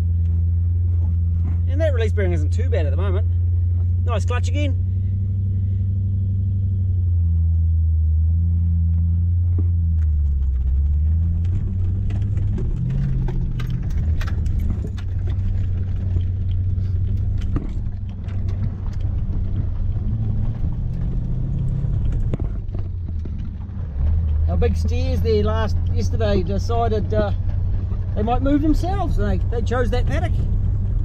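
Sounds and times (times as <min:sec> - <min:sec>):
truck engine running: 0:00.0 - 0:31.0
knocks and rattles in cab: 0:09.5 - 0:31.0.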